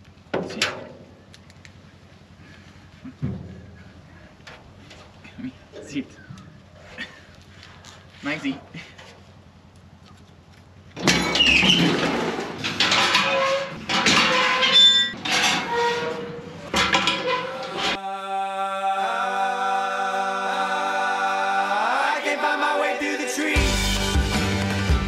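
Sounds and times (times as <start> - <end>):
clattering in metal stock crate: 11.0 - 18.0
background music with held chords: 22.6 - 25.0.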